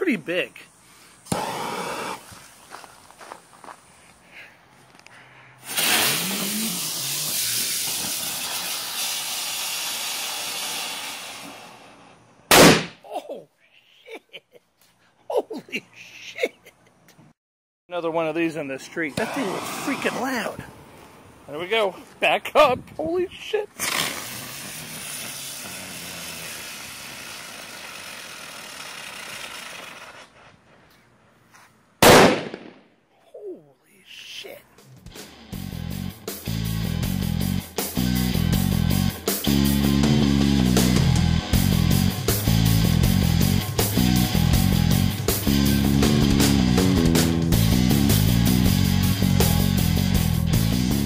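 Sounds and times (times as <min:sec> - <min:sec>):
firework hissing: 0:00.7 - 0:02.7, 0:05.6 - 0:12.8, 0:19.2 - 0:21.2, 0:23.7 - 0:30.4.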